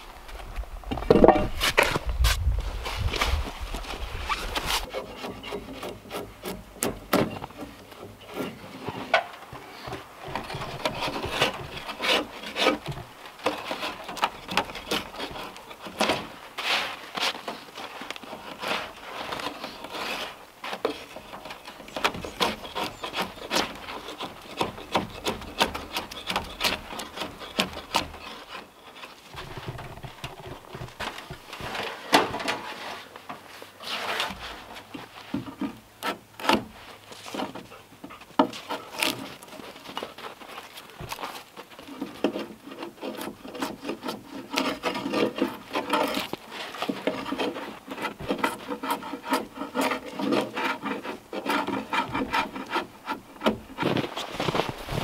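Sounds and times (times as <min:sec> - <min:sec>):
drawknife scraping bark: 0:10.3 - 0:29.9, 0:33.8 - 0:54.8.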